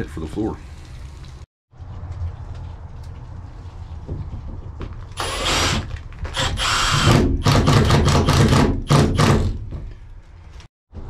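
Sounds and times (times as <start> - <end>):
impact driver driving screws: 5.2 - 9.6.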